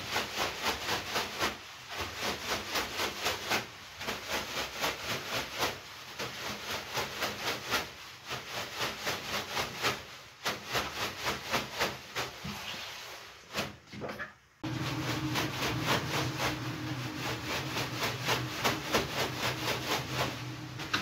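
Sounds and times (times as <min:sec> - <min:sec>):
leafy brooms swishing on skin: 0:14.6 - 0:21.0.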